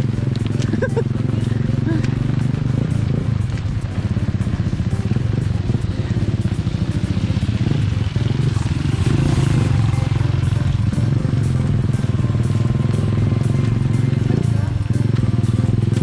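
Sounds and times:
motorcycle engines puttering: 0.0s - 16.0s.

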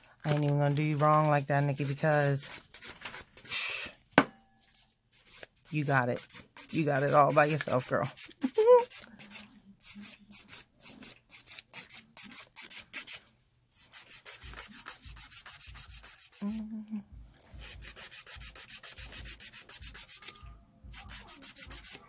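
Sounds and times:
nail file rasping on fingernail: 1.7s - 4.0s, 5.2s - 13.2s, 13.8s - 16.6s, 17.6s - 22.0s.

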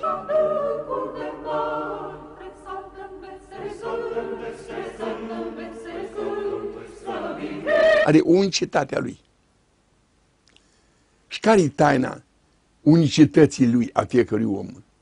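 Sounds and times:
choir singing a cappella: 0.0s - 8.3s.

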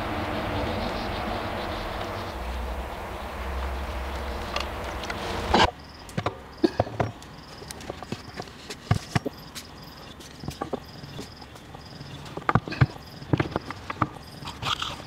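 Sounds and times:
faint scraping: 0.0s - 6.0s
insect chirping: 0.0s - 15.0s
steady hum: 0.0s - 15.0s
wooden parts clicking and knocking: 5.6s - 15.0s.

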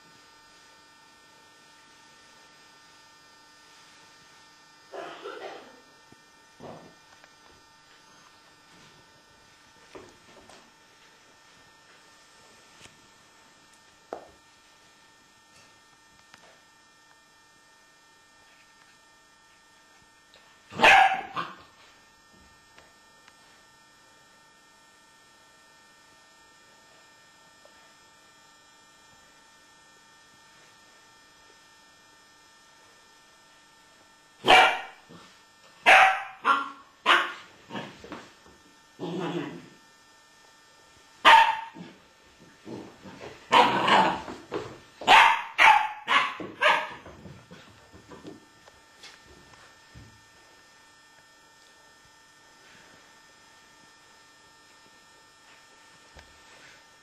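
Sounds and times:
dog barking: 20.7s - 21.6s, 34.4s - 35.0s, 35.8s - 37.5s, 41.2s - 41.9s, 43.5s - 44.1s, 45.1s - 47.0s.

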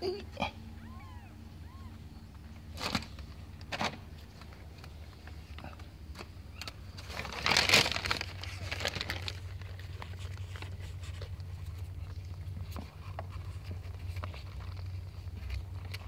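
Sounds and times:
steady low hum: 0.0s - 16.0s
paper and cardboard rustling: 2.7s - 4.6s, 7.0s - 16.0s.

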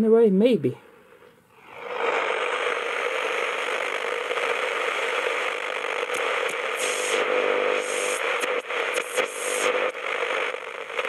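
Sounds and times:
radio static hiss: 0.7s - 11.0s
radio interference crackles: 1.1s - 11.0s.

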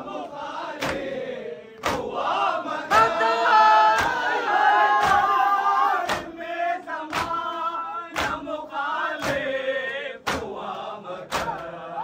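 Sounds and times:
group chanting a lament: 0.0s - 12.0s
hands slapping chests: 0.7s - 3.2s, 3.9s - 8.6s, 9.2s - 11.8s.

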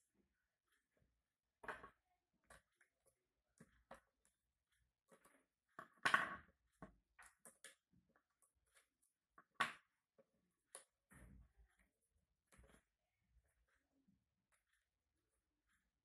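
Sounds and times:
clicks and rustles of handling wires: 1.6s - 13.8s.

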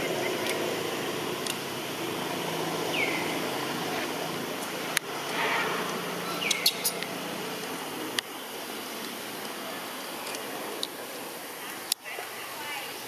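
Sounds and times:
outdoor background hiss: 0.0s - 13.0s
falling chirps: 2.8s - 3.8s, 5.3s - 7.2s.

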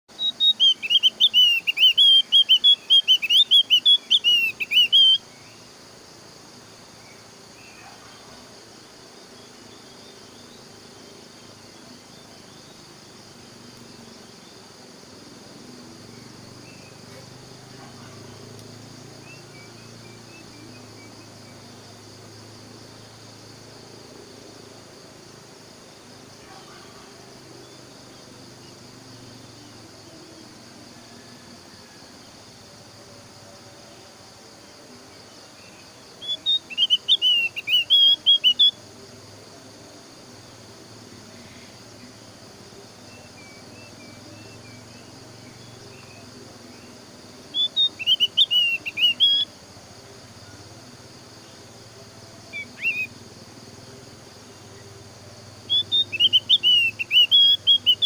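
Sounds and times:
faint insect drone: 0.0s - 58.0s
soft chirps: 0.1s - 5.7s, 36.2s - 38.8s, 47.5s - 49.5s, 55.6s - 58.0s.

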